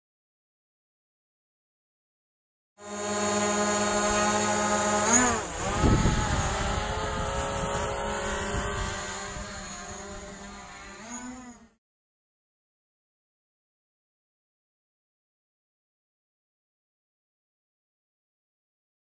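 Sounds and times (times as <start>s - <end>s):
drone propellers whining: 2.8s - 11.8s.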